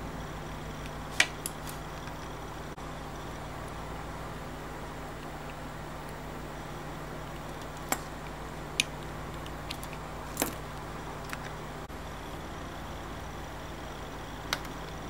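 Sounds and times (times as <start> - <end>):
steady low hum: 0.0 - 15.0
small metallic clicks: 7.2 - 11.6.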